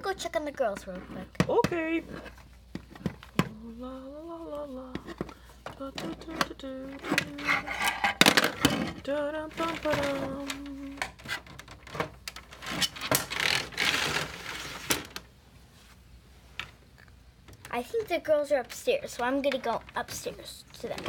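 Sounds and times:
person humming: 3.4 - 7.9, 9.0 - 11.0
plastic dolls clicking and knocking: 5.0 - 9.0, 18.7 - 20.2.

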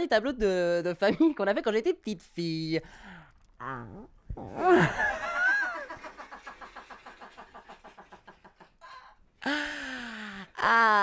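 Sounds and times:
man's comic vocal noise: 4.4 - 5.2.

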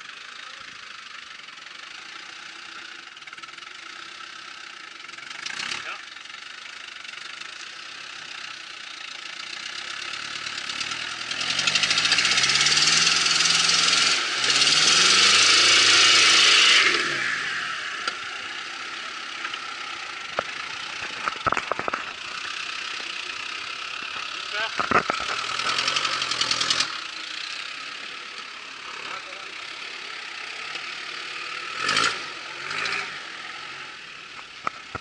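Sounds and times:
engine revving hard: 5.2 - 6.1, 9.4 - 21.3, 22.3 - 34.3
spinning tyres hissing in mud: 7.6 - 21.4, 25.2 - 34.9.

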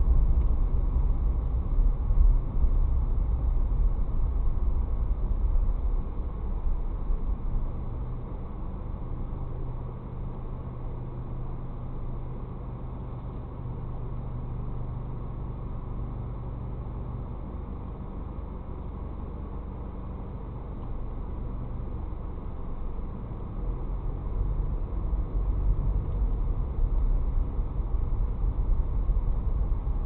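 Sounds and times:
car engine low hum: 0.0 - 30.0.

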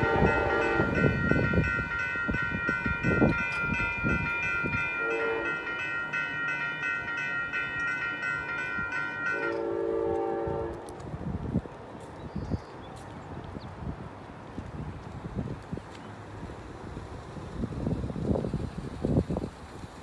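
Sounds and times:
distant train horn: 0.0 - 2.0, 3.1 - 11.0
crossing bell ringing: 0.0 - 10.7
train rumble: 0.0 - 20.0.

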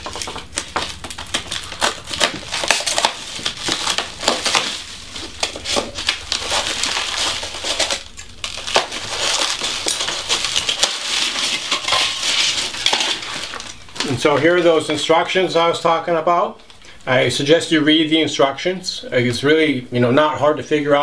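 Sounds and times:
plastic packaging crinkling: 0.0 - 15.2.

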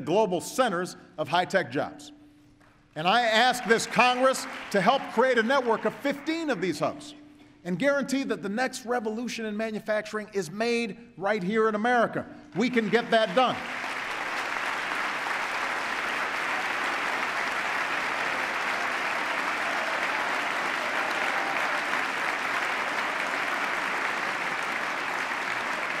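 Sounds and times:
crowd applauding: 3.1 - 6.7, 12.6 - 26.0.

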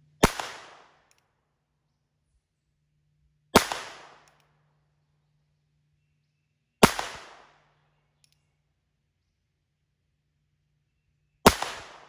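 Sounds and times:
revolver gunshot: 0.2 - 1.1, 3.6 - 4.3, 6.8 - 7.6, 11.4 - 12.0
faint click: 8.2 - 8.5.

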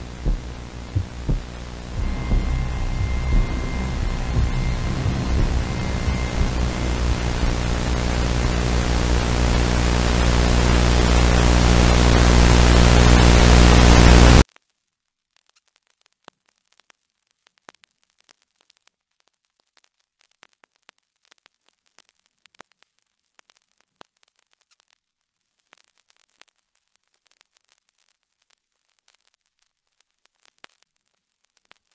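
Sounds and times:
faint clicks and crackles: 0.0 - 13.5, 14.1 - 31.9
loud hissing static: 0.0 - 14.4
low electrical hum: 0.0 - 14.4.

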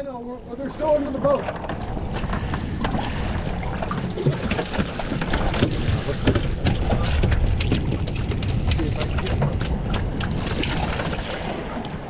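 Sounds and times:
wind rumbling on microphone: 0.0 - 12.0
sharp clicks and knocks: 3.9 - 11.2.

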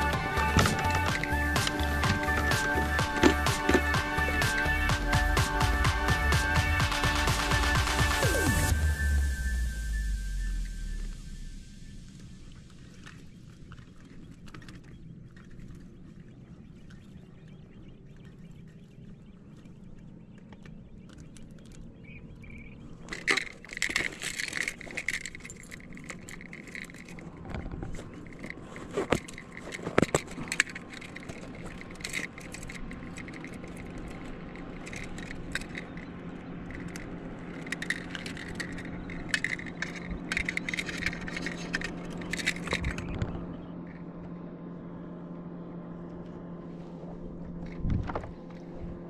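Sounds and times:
steady low hum: 0.0 - 49.0
small hard objects clinking: 23.1 - 43.1.

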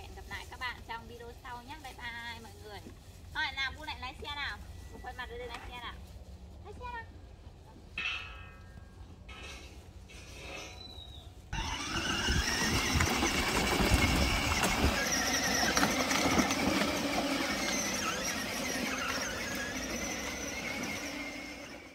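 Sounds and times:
electric motors whining: 11.5 - 21.9
plastic wheels rattling: 11.6 - 21.9.

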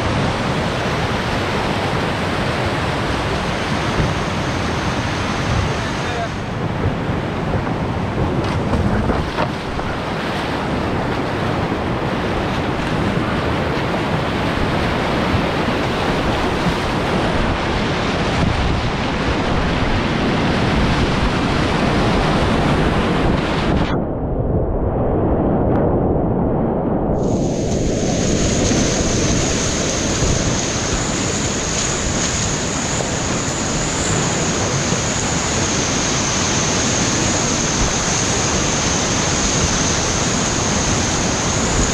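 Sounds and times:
whitewater rapids rushing: 0.0 - 6.6, 7.2 - 23.8, 27.2 - 41.9.

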